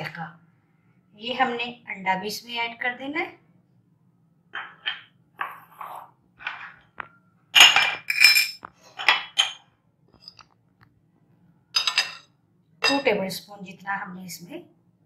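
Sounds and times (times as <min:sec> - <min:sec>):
metal spoon clinking on glass bowl: 0:07.6 - 0:09.6, 0:11.8 - 0:13.2.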